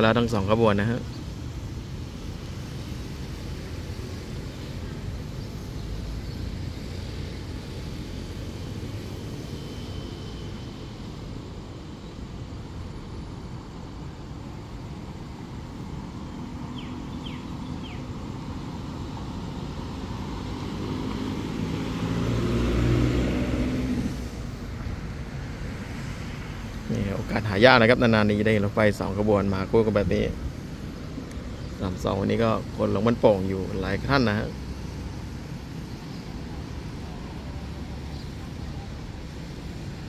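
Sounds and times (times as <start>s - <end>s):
vehicle engines rumbling: 0.0s - 40.0s.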